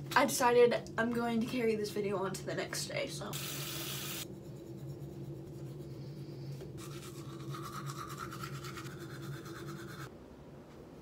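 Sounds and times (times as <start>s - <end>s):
steady low hum: 0.0s - 11.0s
toothbrush brushing teeth: 6.8s - 10.1s.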